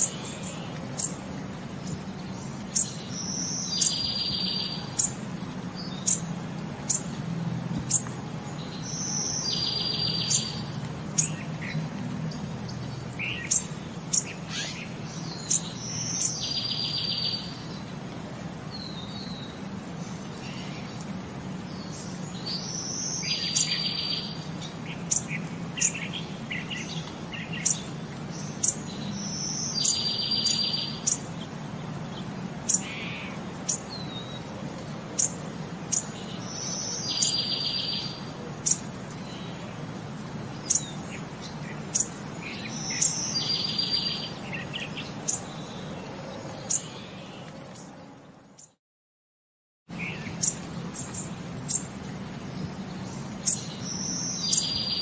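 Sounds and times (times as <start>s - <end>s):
bird song whistle and trill: 1.8s - 5.2s, 7.9s - 11.8s, 13.2s - 17.6s, 21.8s - 31.2s, 35.2s - 39.4s, 40.6s - 45.6s, 53.4s - 55.0s.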